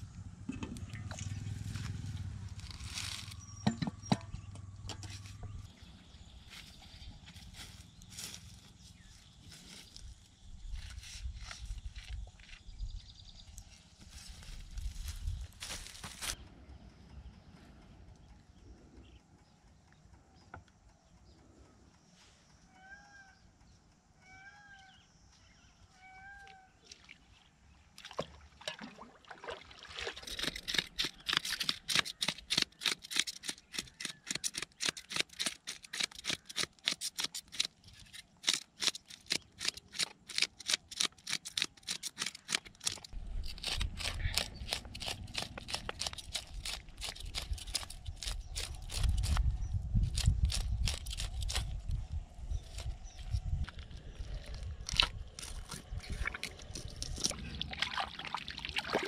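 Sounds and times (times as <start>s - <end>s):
faint outdoor ambience: 0.0s - 59.0s
bird calling: 22.6s - 23.5s, 24.2s - 26.8s.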